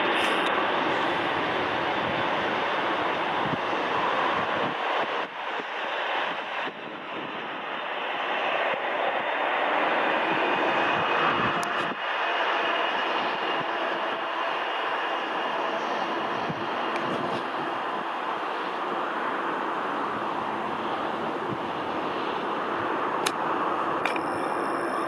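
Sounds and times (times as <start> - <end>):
faint jet whine: 0.0 - 25.0
jet engines rushing: 0.0 - 25.0.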